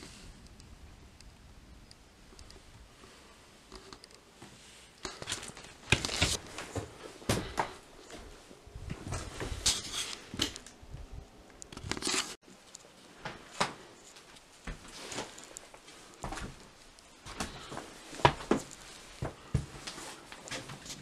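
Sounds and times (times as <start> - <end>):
footsteps crunching on wooden floors: 5.2 - 9.7, 13.2 - 16.6, 17.2 - 20.9.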